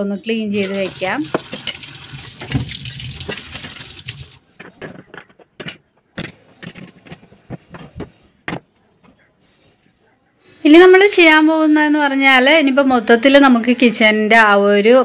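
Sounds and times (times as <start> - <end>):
tap water running into sink: 0.6 - 4.4.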